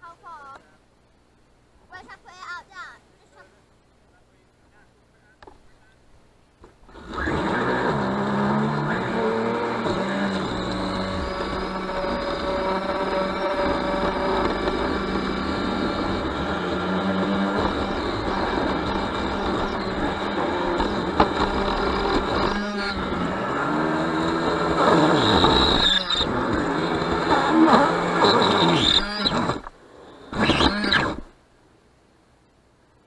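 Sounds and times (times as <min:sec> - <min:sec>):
small boat motor whining: 0:06.6 - 0:31.4.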